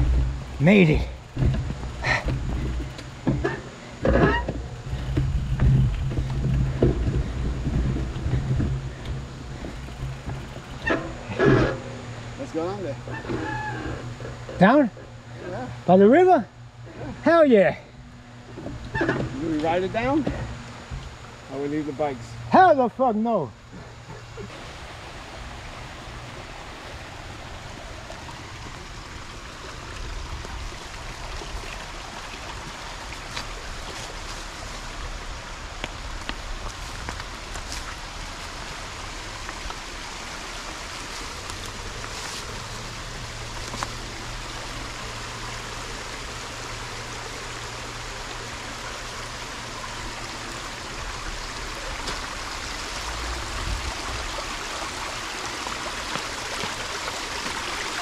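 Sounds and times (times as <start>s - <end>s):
creek running over stones: 0.0s - 58.0s.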